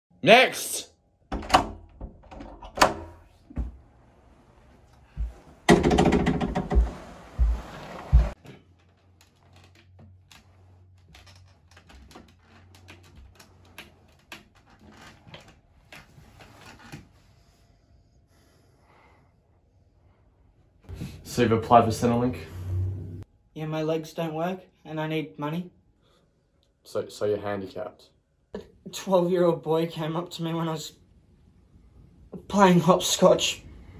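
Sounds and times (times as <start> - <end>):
faint clicks and knocks: 4.9 - 17.0
heavy thumps: 5.1 - 8.4
loud scraping rush: 21.2 - 23.2.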